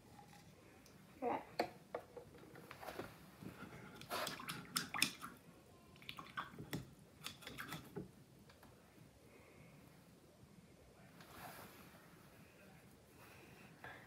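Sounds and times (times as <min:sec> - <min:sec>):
paintbrush splashing in water cup: 0:04.0 - 0:05.4, 0:06.0 - 0:08.0.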